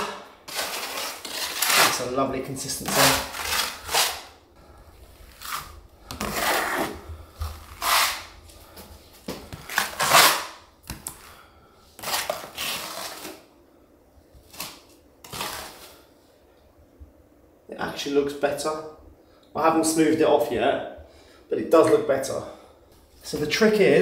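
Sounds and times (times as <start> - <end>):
trowel scraping plaster on wall: 0.0 - 4.3, 5.3 - 7.0, 7.6 - 8.3, 9.6 - 10.6.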